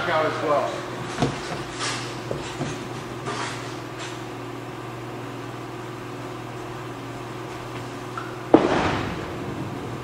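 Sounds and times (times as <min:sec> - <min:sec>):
steady hum: 0:00.0 - 0:10.0
bowling pins crashing: 0:08.5 - 0:10.0.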